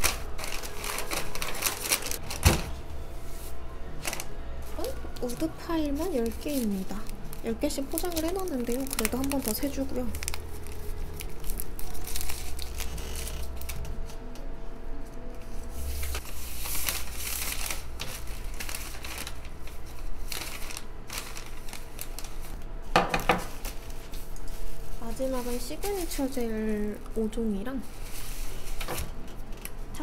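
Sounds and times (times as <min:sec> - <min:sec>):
plastic packaging crinkling: 0:00.0 - 0:02.5, 0:04.0 - 0:14.2, 0:16.1 - 0:26.6.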